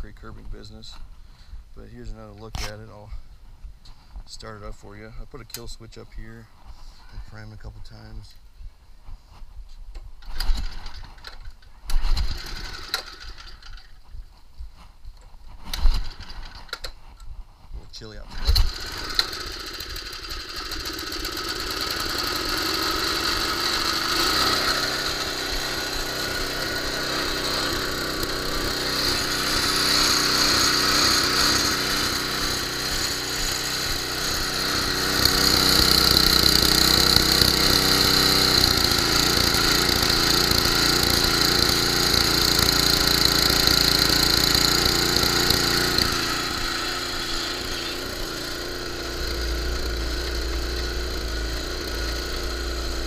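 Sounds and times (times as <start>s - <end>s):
small engine running: 10.2s - 14.0s, 18.3s - 53.0s.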